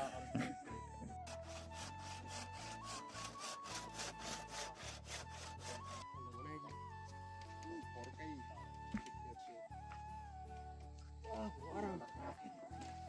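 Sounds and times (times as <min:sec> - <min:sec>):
hand saw cutting wood: 0:01.2 - 0:06.1.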